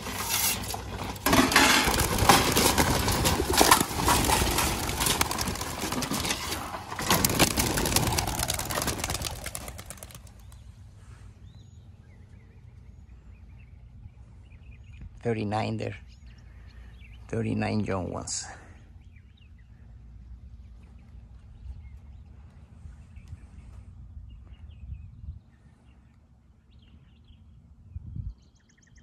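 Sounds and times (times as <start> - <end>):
pigeon wings flapping: 0.0 - 10.6.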